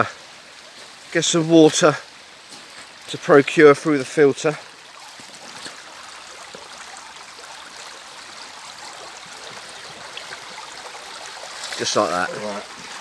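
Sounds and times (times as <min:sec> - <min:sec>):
creek water rushing: 0:00.0 - 0:13.0.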